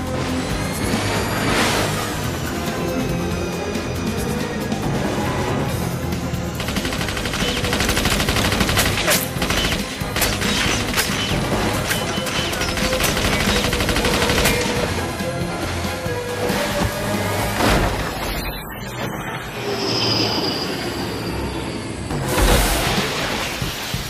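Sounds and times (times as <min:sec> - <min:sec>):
film score music: 0:00.0 - 0:24.0
machine gun automatic fire: 0:06.6 - 0:14.8.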